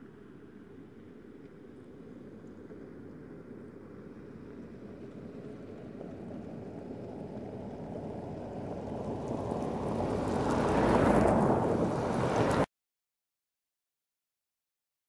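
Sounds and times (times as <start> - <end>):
car engines running: 4.5 - 12.6
tyres rumbling on gravel: 5.2 - 12.6.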